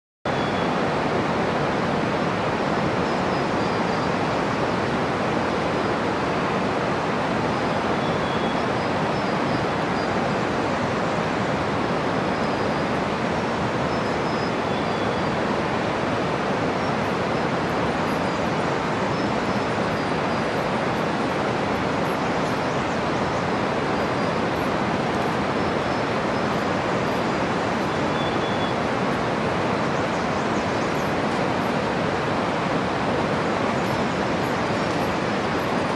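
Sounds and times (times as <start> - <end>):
river rushing: 0.3 - 35.9.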